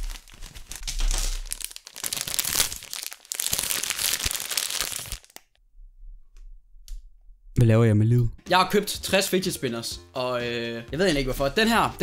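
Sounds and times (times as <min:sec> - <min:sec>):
plastic packaging crinkling: 0:00.0 - 0:05.6.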